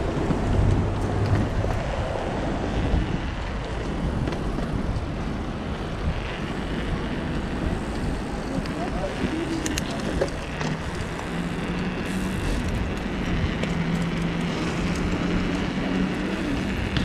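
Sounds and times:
bike clicks and rattles: 0.0 - 17.0
bike tyres on paving stones: 0.0 - 17.0.

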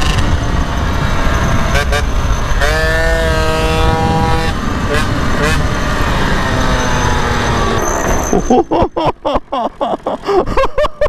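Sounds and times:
wind rumble on microphone: 0.0 - 8.3
moped engine running hard: 0.0 - 8.6.

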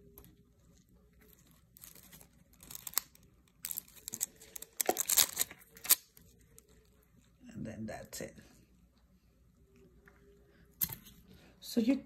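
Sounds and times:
foil crinkling: 1.3 - 6.7.

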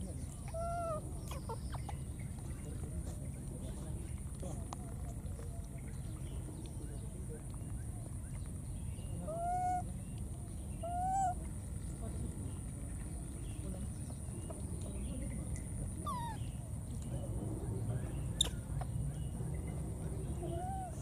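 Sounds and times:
baby monkeys coo calls: 0.2 - 2.4, 9.1 - 11.9, 15.8 - 16.8, 18.3 - 19.4, 20.2 - 21.0.

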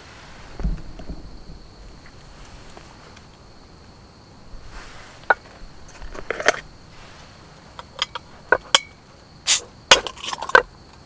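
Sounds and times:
bottle cap hiss: 6.2 - 10.5
bottle opener clinking: 7.8 - 10.6.

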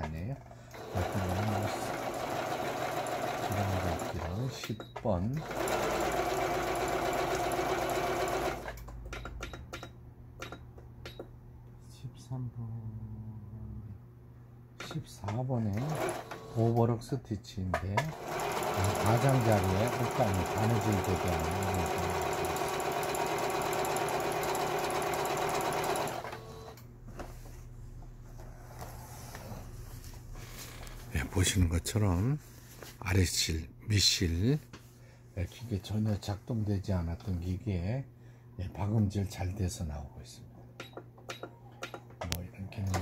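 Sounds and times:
sewing machine stitching: 0.7 - 4.7, 5.3 - 8.8, 15.6 - 16.8, 18.0 - 26.8.

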